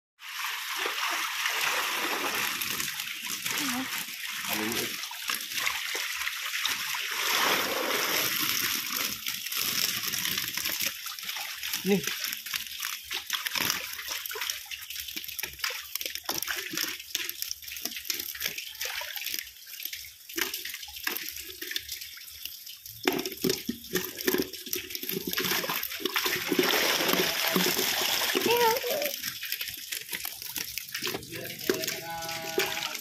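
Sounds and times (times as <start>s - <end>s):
fish splashing in shallow water: 0.2s - 33.0s
running water hiss: 0.3s - 12.3s, 25.1s - 30.2s.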